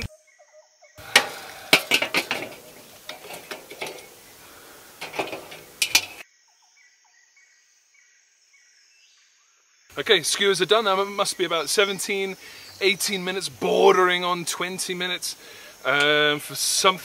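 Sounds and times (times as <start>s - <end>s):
faint bird chirps: 0.0s - 1.7s, 6.4s - 9.7s
metal grill grate clanking: 1.0s - 6.2s.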